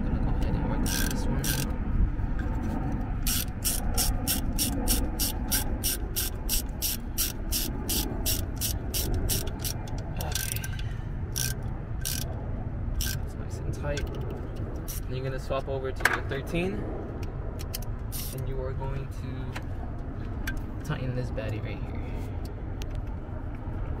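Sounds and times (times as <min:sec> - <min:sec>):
ratchet wrench clicking: 0:00.8 - 0:01.8, 0:03.2 - 0:12.4, 0:13.0 - 0:13.3, 0:14.0 - 0:15.1, 0:17.6 - 0:18.5.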